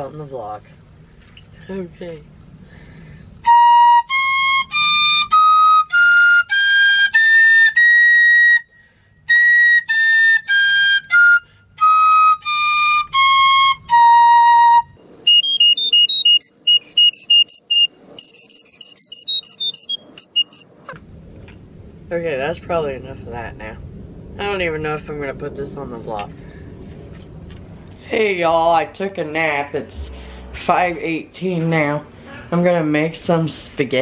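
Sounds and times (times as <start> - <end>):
piccolo playing scales: 3.4 - 8.7, 9.3 - 21.0.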